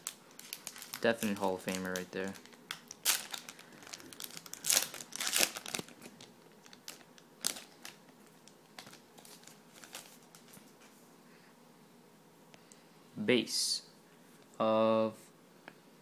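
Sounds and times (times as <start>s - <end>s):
foil wrapper crinkling and tearing: 0.0s - 10.7s.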